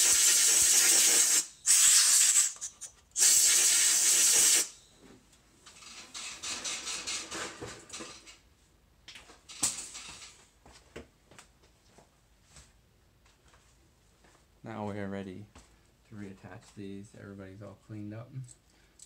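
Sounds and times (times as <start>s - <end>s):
compressed air blasts: 0.0s - 4.8s.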